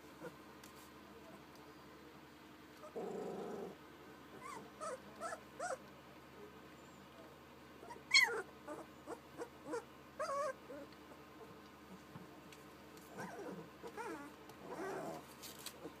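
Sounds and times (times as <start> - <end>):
puppies whimpering: 4.4 - 5.8, 7.8 - 11.0, 13.1 - 15.2.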